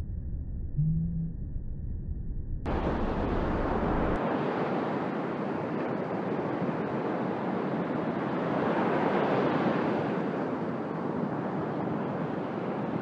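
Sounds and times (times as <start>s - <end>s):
sea surf breaking: 2.7s - 13.0s.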